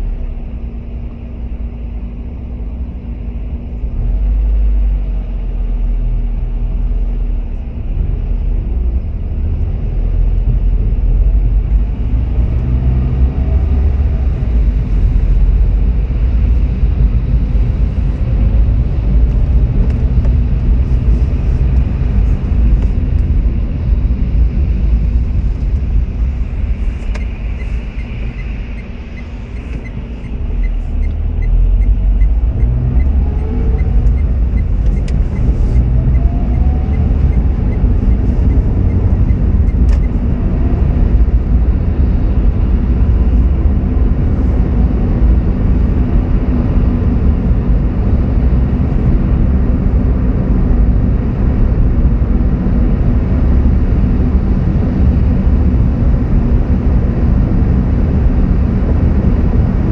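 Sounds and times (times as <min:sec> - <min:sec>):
car engine and tyres on wet road: 0:00.0 - 0:59.9
turn indicator ticking: 0:27.0 - 0:40.3.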